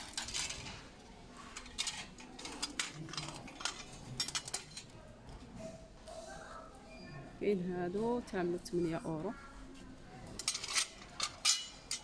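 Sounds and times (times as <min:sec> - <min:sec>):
metal and glass pieces clinking: 0:01.6 - 0:04.8, 0:10.4 - 0:12.0.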